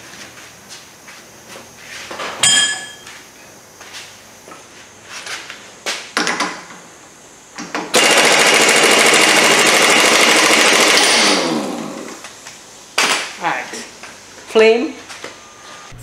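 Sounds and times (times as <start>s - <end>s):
pneumatic impact wrench hammering: 7.6s - 12.2s.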